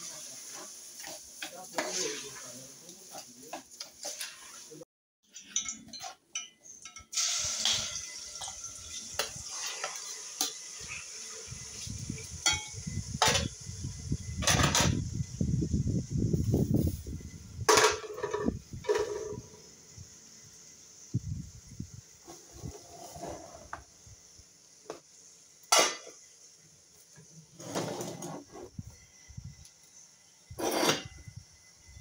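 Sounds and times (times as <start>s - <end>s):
steady hiss: 0.0s - 4.8s, 6.7s - 32.0s
metal spoon scraping bowl and pans: 3.1s - 11.0s, 14.4s - 15.0s, 17.7s - 19.6s, 30.5s - 31.3s.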